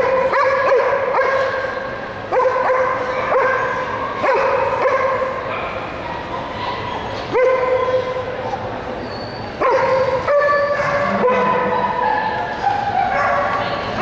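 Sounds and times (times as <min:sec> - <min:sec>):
dog yipping and whining: 0:09.0 - 0:13.4.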